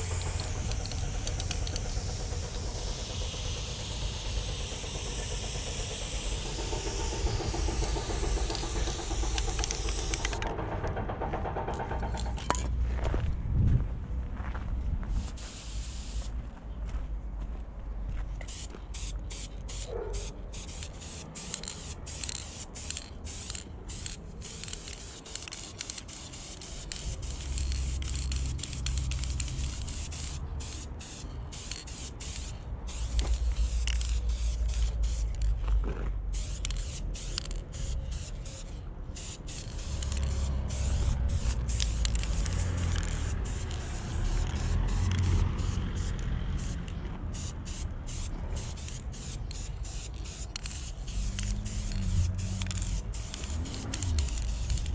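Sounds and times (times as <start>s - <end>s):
spray paint can hissing: 0.0s - 10.5s, 15.2s - 16.3s, 18.4s - 35.6s, 36.2s - 54.9s
low rumble: 0.0s - 15.3s.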